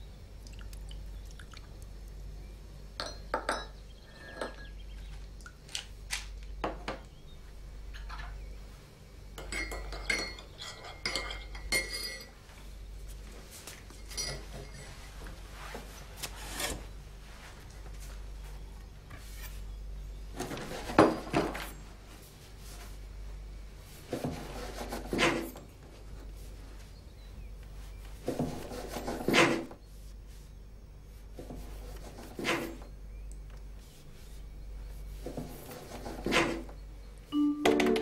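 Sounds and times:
steady low hum: 0:00.0 - 0:38.0
crockery and utensils clattering: 0:03.0 - 0:04.8, 0:09.4 - 0:12.4, 0:13.9 - 0:15.0.

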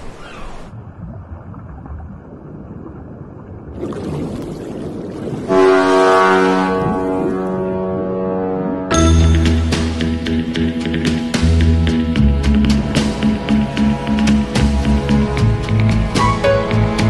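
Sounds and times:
sea and wind rushing: 0:00.0 - 0:09.0
ship horn blast: 0:05.5 - 0:09.7.

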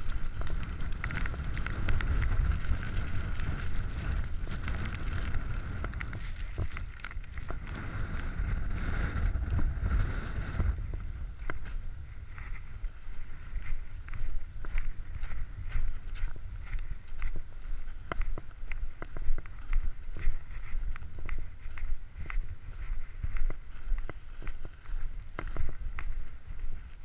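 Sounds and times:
wind buffeting a microphone: 0:00.0 - 0:27.0.

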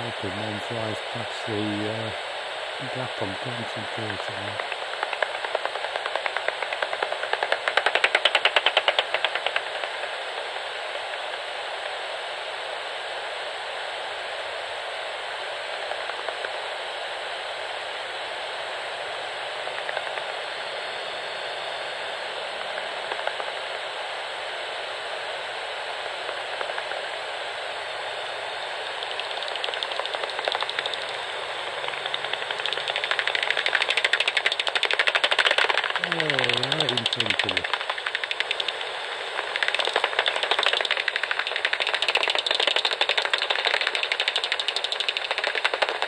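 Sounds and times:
bat echolocation clicks: 0:04.6 - 0:09.6, 0:29.0 - 0:46.0
bat detector hissing: 0:28.9 - 0:43.1.

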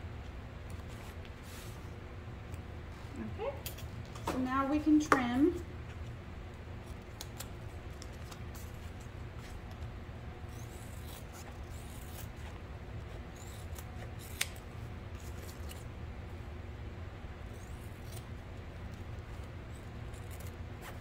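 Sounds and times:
scissors snipping fabric: 0:13.3 - 0:14.6.

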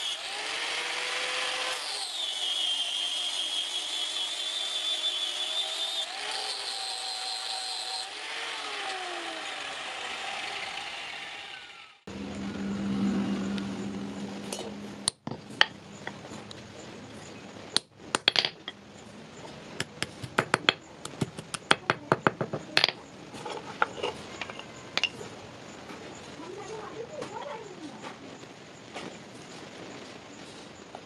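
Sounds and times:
low machine hum: 0:12.1 - 0:17.5.

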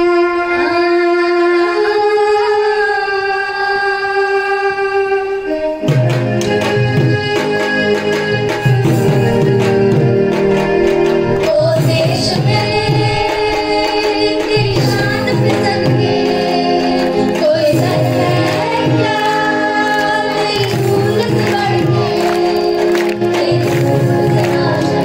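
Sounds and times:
song with singing voices: 0:00.0 - 0:25.0.

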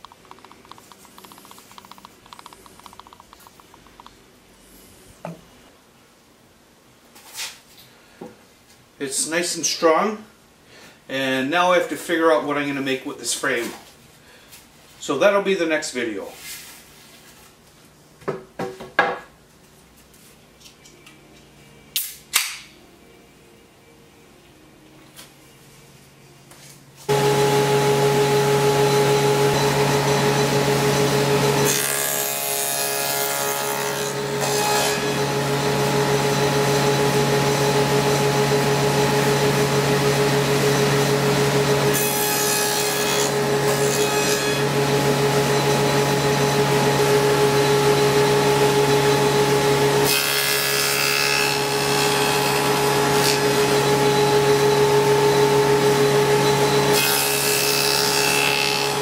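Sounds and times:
table saw motor hum: 0:27.1 - 0:59.0
saw blade cutting wood: 0:29.0 - 0:36.8, 0:41.8 - 0:54.3, 0:56.4 - 0:59.0.

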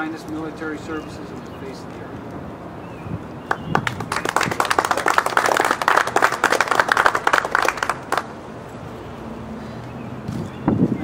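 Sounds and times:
hands clapping: 0:03.5 - 0:08.3.

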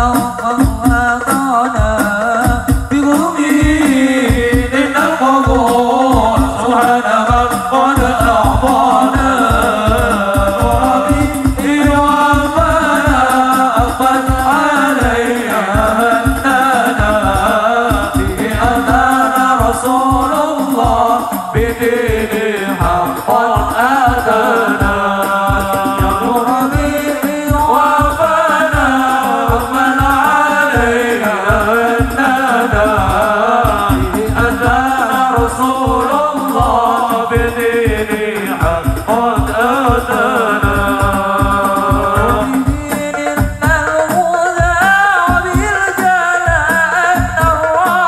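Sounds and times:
frame drum beats: 0:00.0 - 0:48.0
men singing devotional song: 0:00.0 - 0:48.0.

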